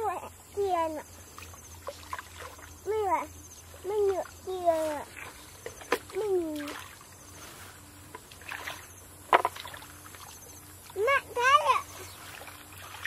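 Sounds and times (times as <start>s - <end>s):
sharp splash: 8.3s - 10.4s.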